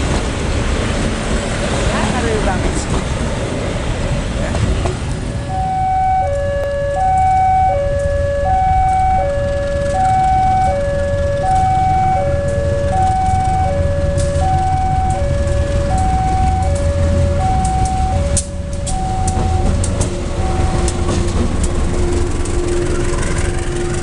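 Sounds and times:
steady low rumble: 0:00.0 - 0:24.0
level crossing alarm two-tone: 0:05.5 - 0:19.8, 0:20.4 - 0:21.1.

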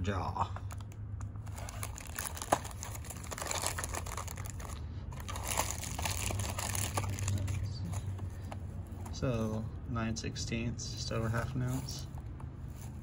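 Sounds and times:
plastic packaging crinkling: 0:01.4 - 0:07.7.

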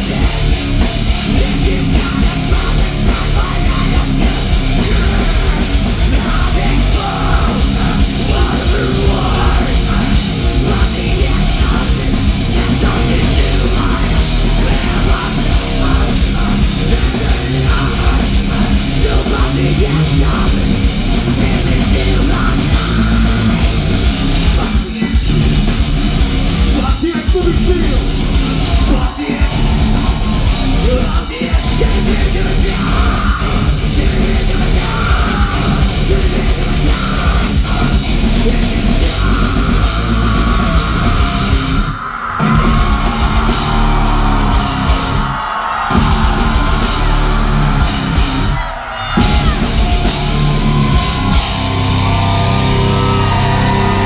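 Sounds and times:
shouted vocals: 0:00.0 - 0:25.8, 0:26.6 - 0:54.0
heavy metal band playing: 0:00.0 - 0:54.0.

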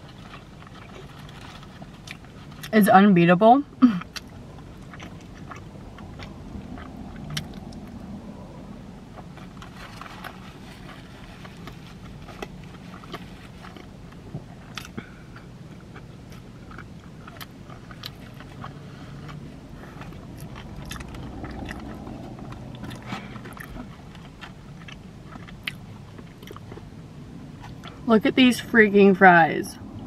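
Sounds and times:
low steady hum: 0:00.0 - 0:30.0
person chewing: 0:04.0 - 0:08.0, 0:09.2 - 0:26.9.

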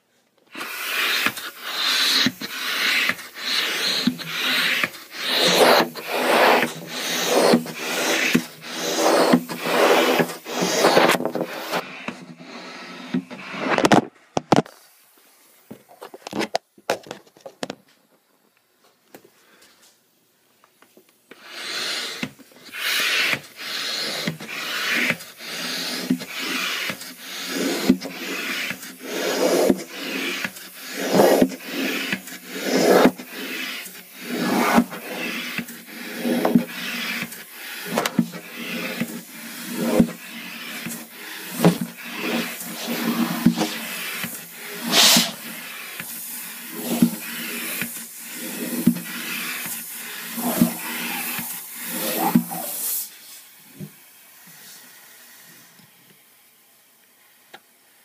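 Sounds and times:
hand air pump strokes: 0:00.5 - 0:14.0, 0:21.3 - 0:53.1.

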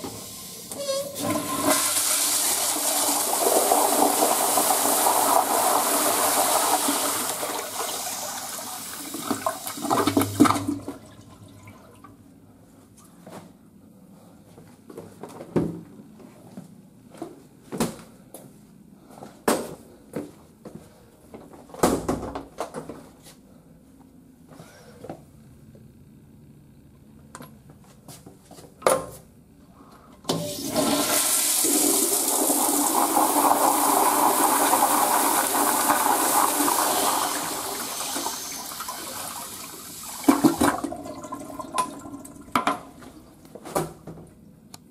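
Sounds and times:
toilet flushing: 0:00.0 - 0:12.2, 0:30.3 - 0:43.3.

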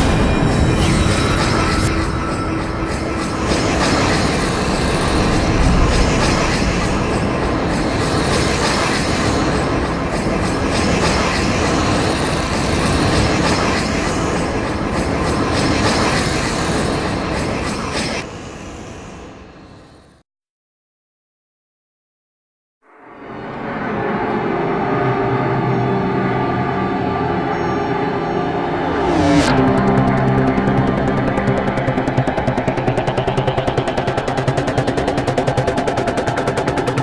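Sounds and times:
rhythmic rumbling and clattering: 0:00.0 - 0:17.8, 0:28.9 - 0:37.0.

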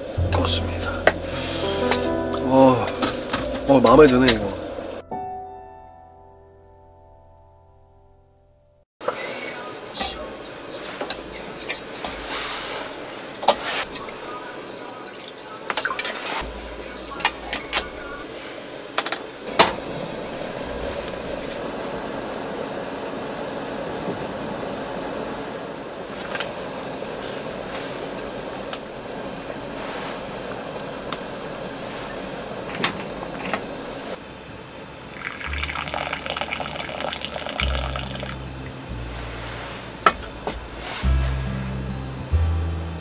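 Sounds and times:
background music with bass line: 0:00.0 - 0:06.3, 0:37.6 - 0:43.0
kettle water heating: 0:09.0 - 0:38.9.

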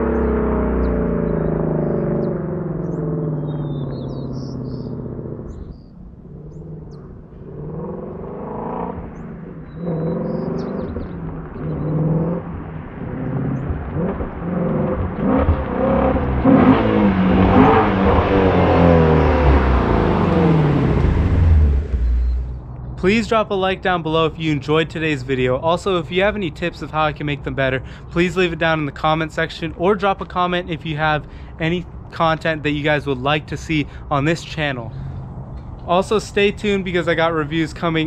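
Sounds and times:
car exhaust accelerating: 0:00.0 - 0:38.0.

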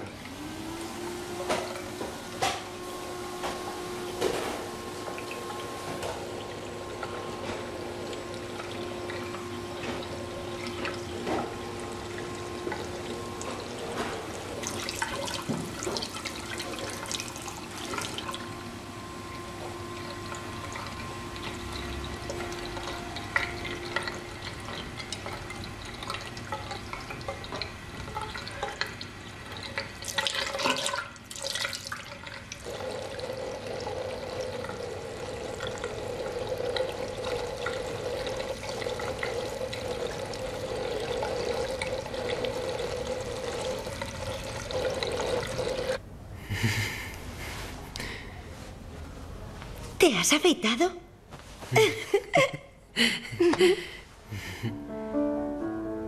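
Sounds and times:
tap water running into sink: 0:03.4 - 0:18.5, 0:20.0 - 0:46.0.

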